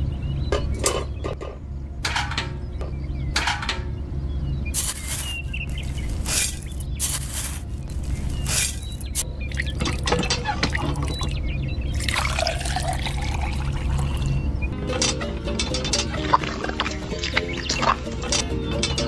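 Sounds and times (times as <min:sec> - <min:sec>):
steady low hum: 0:00.0 - 0:19.0
scraping of dry cement mix: 0:04.8 - 0:09.2
water pouring and splashing: 0:04.8 - 0:11.4, 0:12.0 - 0:14.4, 0:16.0 - 0:18.4.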